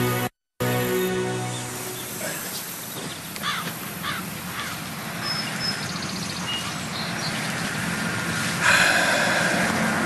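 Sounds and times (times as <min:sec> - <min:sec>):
low rural background: 0:00.0 - 0:10.0
bird chirps and trills: 0:00.8 - 0:07.9
steady hiss: 0:01.6 - 0:05.2.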